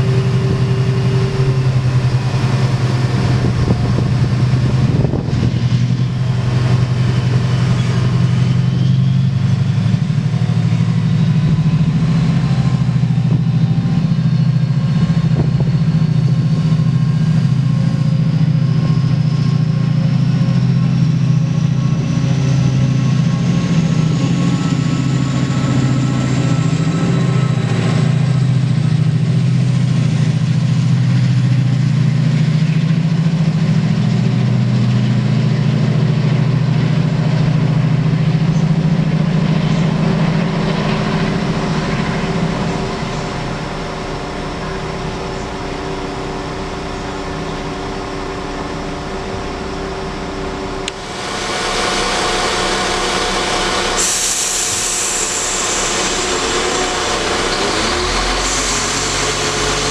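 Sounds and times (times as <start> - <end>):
diesel locomotive engine passing: 0.0 - 59.9
diesel train idling: 0.0 - 59.9
loud hiss: 51.0 - 59.9.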